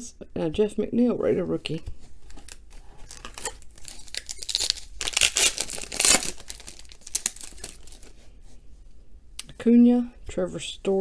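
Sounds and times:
foil wrapper tearing and crinkling: 2.3 - 8.1.

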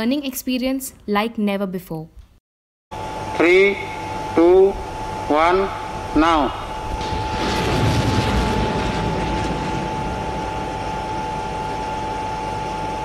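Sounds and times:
rocket launch roar: 5.9 - 12.9.

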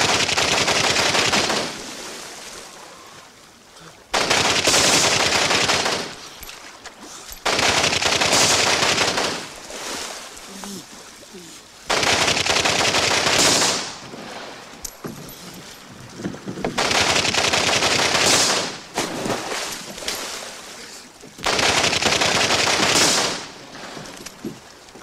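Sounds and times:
automatic gunfire: 0.0 - 1.8, 4.2 - 6.2, 7.4 - 9.5, 11.9 - 14.0, 16.8 - 18.9, 21.4 - 23.6
water splashing: 0.0 - 25.0.

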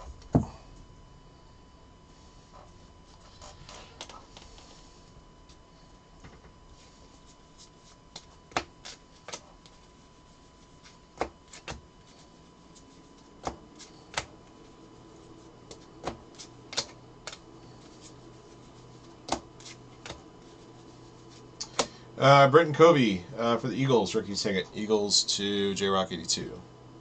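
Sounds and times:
cards snapping on a tabletop: 13.4 - 14.3, 15.7 - 17.4, 19.2 - 20.2.

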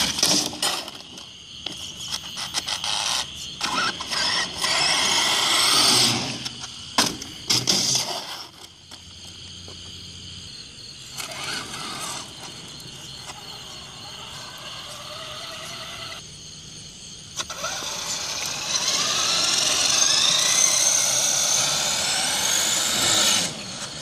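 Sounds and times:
toy truck knocking over: 0.0 - 1.2
tyre noise: 0.0 - 10.1
insects chirping: 0.0 - 24.0
electric motor whining: 2.6 - 6.6, 11.1 - 16.2, 17.4 - 24.0.

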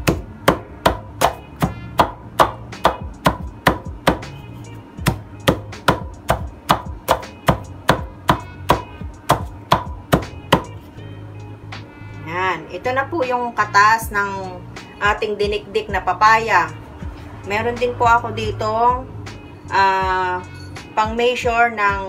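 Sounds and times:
wooden pestle pounding in mortar: 0.0 - 4.3, 5.0 - 10.8.

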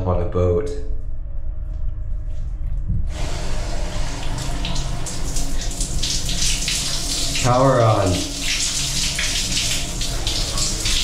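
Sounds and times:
low steady hum: 0.0 - 11.0
shower water splashing: 3.1 - 11.0.

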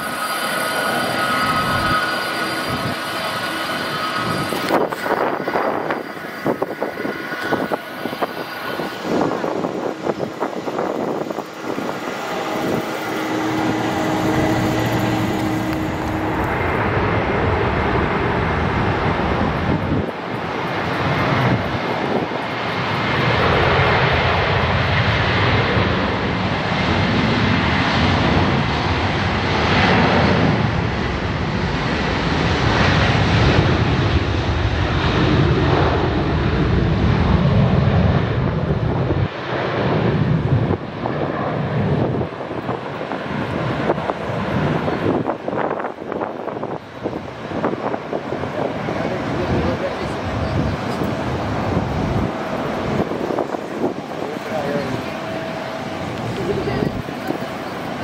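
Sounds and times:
jet engines running: 0.0 - 58.0.

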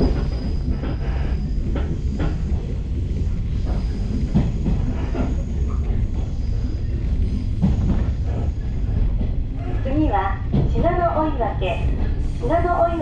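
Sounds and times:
electric train rumbling: 0.0 - 13.0.

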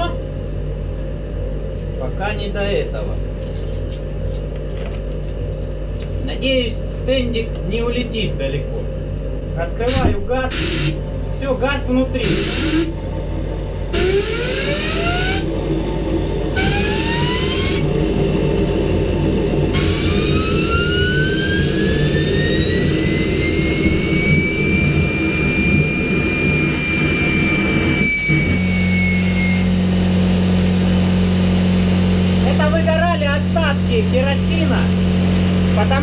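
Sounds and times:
steady low hum: 0.0 - 36.0
turbine whine: 0.0 - 36.0
hissing air: 9.9 - 11.0, 12.2 - 12.9.

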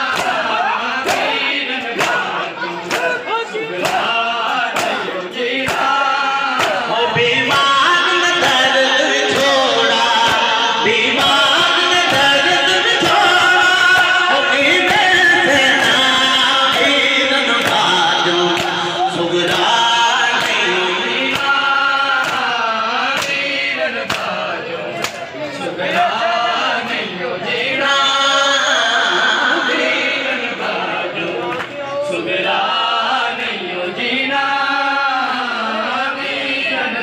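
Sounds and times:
crowd of men singing: 0.0 - 37.0
man singing through loudspeaker: 0.0 - 37.0
chest-beating slaps: 4.7 - 5.0, 6.6 - 6.9.

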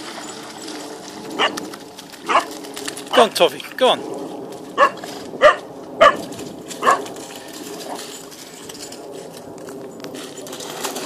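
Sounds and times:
shallow stream rushing: 0.0 - 3.6
puppy yapping: 2.3 - 2.5, 4.8 - 6.2, 6.8 - 7.1.

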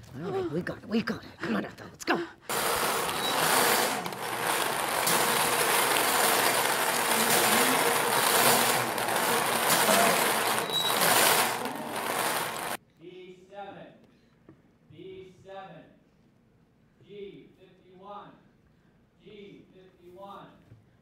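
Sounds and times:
bingo balls clattering in cage: 2.5 - 12.8.

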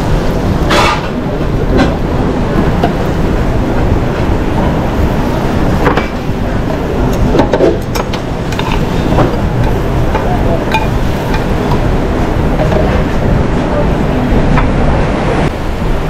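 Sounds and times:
busy kitchen rumble: 0.0 - 16.0
metal tongs clinking on skillet: 7.9 - 9.0, 9.6 - 11.8.

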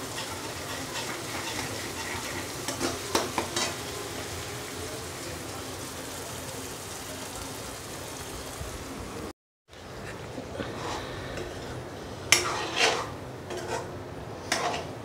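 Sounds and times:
metal spatula scraping a pan: 0.0 - 4.0, 10.7 - 15.0
frying hiss: 0.0 - 15.0.

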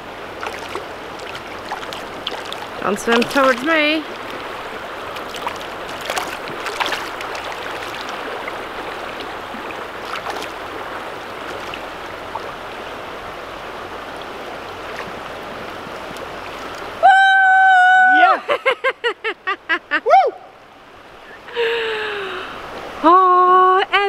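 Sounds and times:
water splashes: 0.0 - 17.0
river water flowing over rocks: 0.0 - 18.4.

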